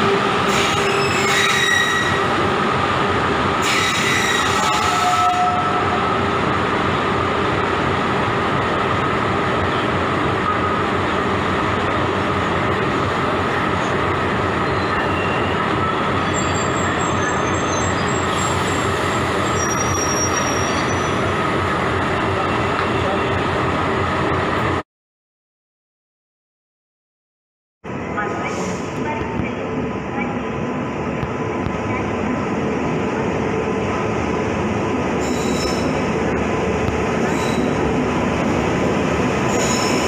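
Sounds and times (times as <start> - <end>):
faint brake squeals: 19.5 - 21.2.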